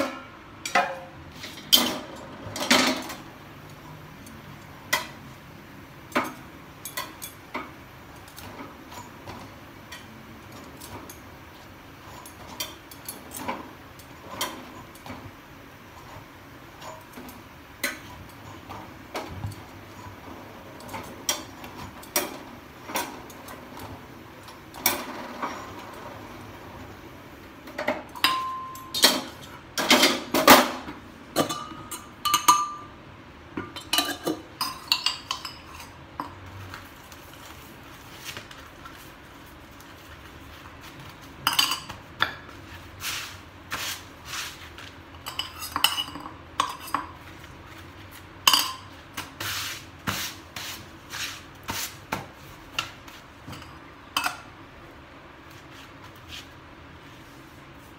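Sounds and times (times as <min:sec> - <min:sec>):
metal utensils clinking: 0:27.8 - 0:32.8, 0:33.7 - 0:36.6, 0:41.4 - 0:42.3, 0:45.1 - 0:47.2, 0:48.4 - 0:48.9.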